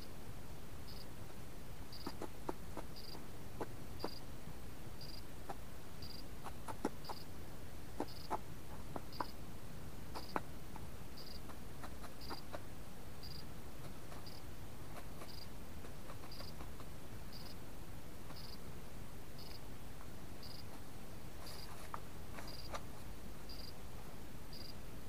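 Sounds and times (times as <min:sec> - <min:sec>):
bird pecking at food: 0:01.9 - 0:04.2, 0:05.2 - 0:07.3, 0:07.9 - 0:09.4, 0:10.1 - 0:17.6, 0:18.2 - 0:18.7, 0:19.4 - 0:23.7.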